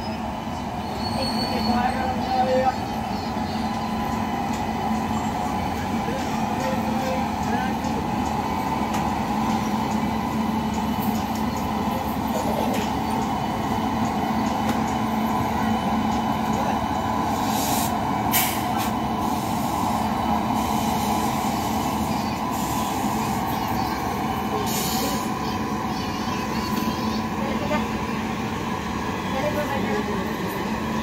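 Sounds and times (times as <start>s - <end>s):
electric locomotive humming: 0.0s - 31.0s
train wheels rumbling on rails: 0.0s - 31.0s.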